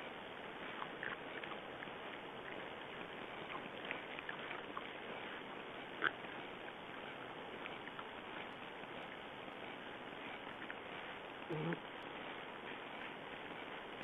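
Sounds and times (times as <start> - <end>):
animals snuffling: 0.0 - 14.0
steady hiss: 0.0 - 14.0
short animal call: 11.5 - 11.8.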